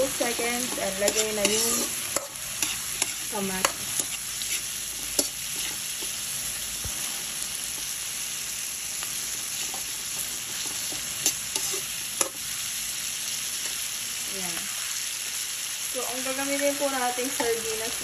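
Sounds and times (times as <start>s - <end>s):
metal spatula scraping pan: 0.0s - 6.2s, 10.4s - 12.3s
vegetables sizzling in hot oil: 0.0s - 18.0s.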